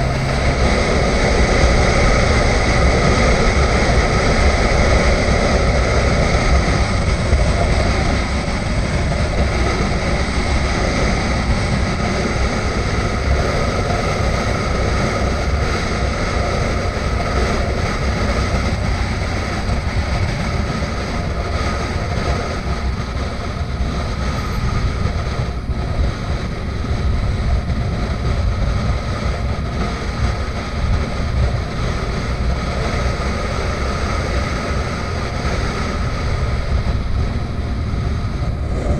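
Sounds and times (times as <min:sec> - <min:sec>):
motorcycle engine drone: 0:00.0 - 0:38.9
wind rush over microphone: 0:00.0 - 0:38.9.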